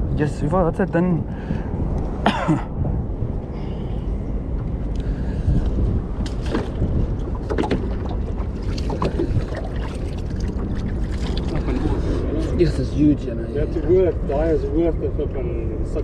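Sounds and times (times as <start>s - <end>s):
boat low rumble: 0.0s - 16.0s.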